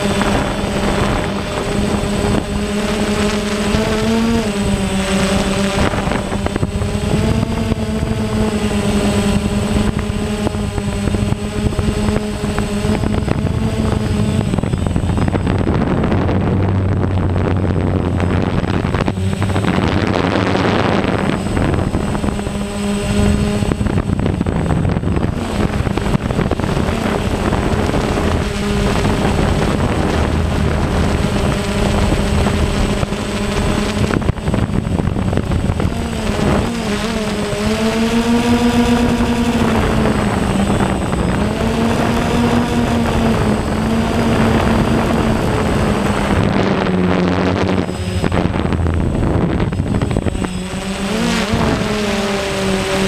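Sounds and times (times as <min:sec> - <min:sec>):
drone propellers buzzing: 0:00.0 - 0:53.0
rushing wind noise: 0:00.0 - 0:53.0.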